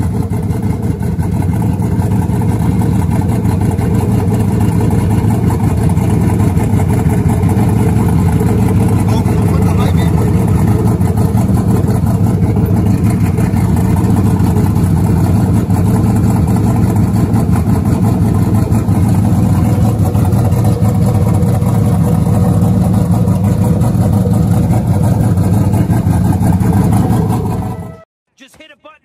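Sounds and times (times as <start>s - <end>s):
pickup truck engine idling: 0.0s - 28.0s.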